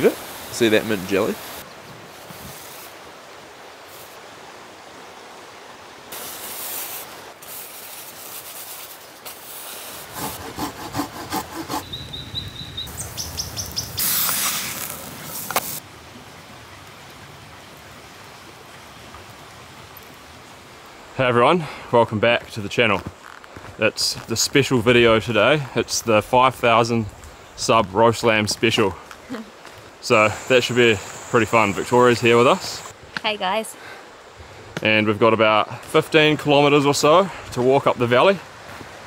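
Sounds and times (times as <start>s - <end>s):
high bird chirps: 11.8s - 14.2s
nylon tent fabric rustling: 14.0s - 15.8s.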